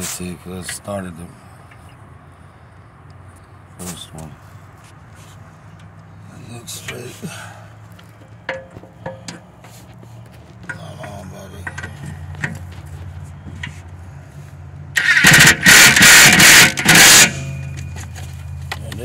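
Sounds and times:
impact driver hammering: 15.0s - 17.8s.

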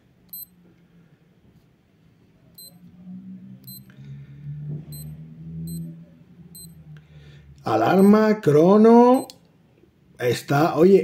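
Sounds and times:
digital watch beeps: 0.3s - 0.5s, 2.6s - 2.8s, 3.6s - 3.9s, 4.9s - 5.1s, 5.7s - 5.9s, 6.6s - 6.8s, 8.0s - 8.2s.

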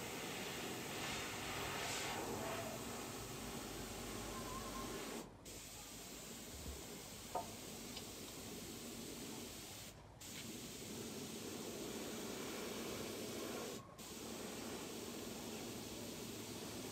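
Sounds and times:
spray gun hissing: 4.8s - 16.9s.

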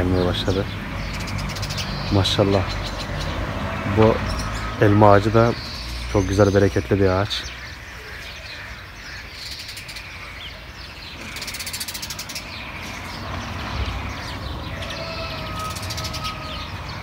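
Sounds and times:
rapid rattling bird trills: 0.0s - 17.0s
songbirds chirping: 0.0s - 17.0s.

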